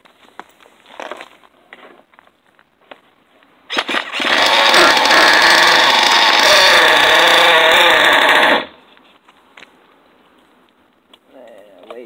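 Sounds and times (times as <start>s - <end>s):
nitro engine buzzing: 3.7s - 8.8s.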